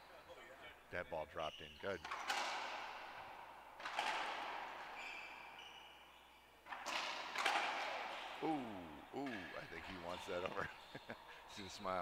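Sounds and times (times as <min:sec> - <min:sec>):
high shoe squeaks: 0:01.4 - 0:02.4, 0:04.8 - 0:06.6, 0:09.8 - 0:12.0
racquetball smacks echoing: 0:02.0 - 0:05.7, 0:06.6 - 0:08.4.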